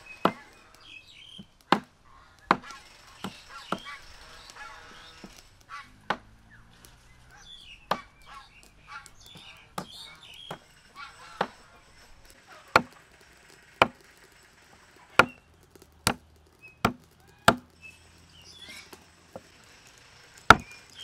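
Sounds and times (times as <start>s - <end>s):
cleaver chopping on wooden block: 1.7s - 1.9s, 2.5s - 3.9s, 6.0s - 6.3s, 7.9s - 8.1s, 12.7s - 13.0s, 16.0s - 16.2s, 16.8s - 17.7s, 20.5s - 20.7s.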